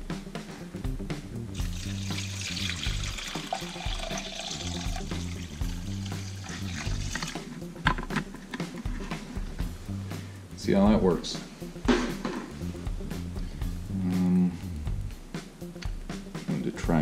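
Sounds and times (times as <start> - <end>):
background music: 0.0 - 17.0
water pouring into metal tank: 1.6 - 7.5.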